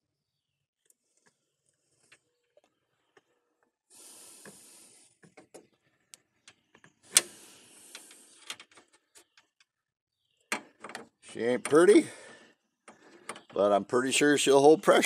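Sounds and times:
small clicks: 5.3s - 9.7s.

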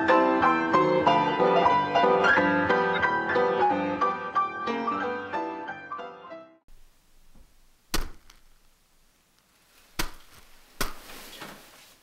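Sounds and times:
plucked string and piano music: 0.0s - 6.6s
short sharp thuds: 6.7s - 8.8s, 9.8s - 11.6s.

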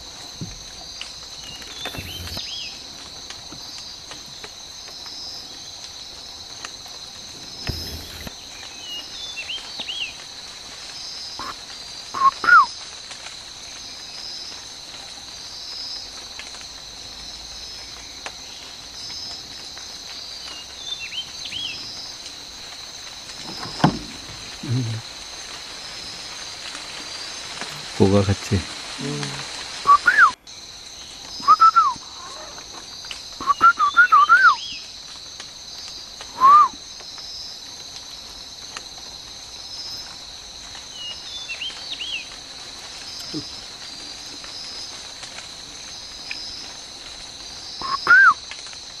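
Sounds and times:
insects chorus: 0.0s - 49.0s
bird chirps: 1.4s - 2.8s.

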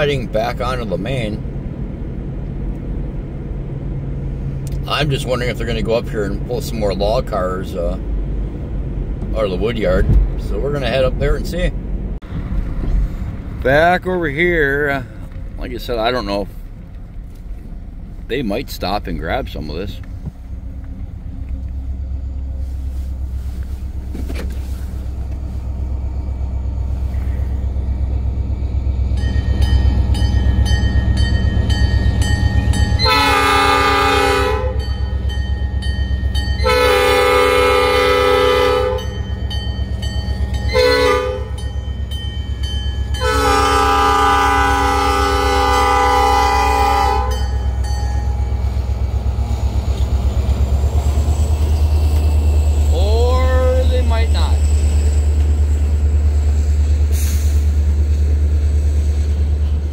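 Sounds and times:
diesel locomotive rumbling: 0.0s - 59.9s
multi-note train horn blasts: 32.6s - 35.2s, 36.6s - 39.3s, 40.7s - 41.8s, 43.1s - 47.9s.

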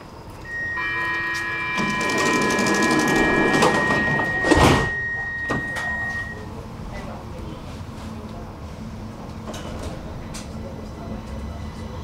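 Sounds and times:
door warning tones: 0.4s - 6.5s
sliding doors closing with thud: 1.6s - 6.3s.

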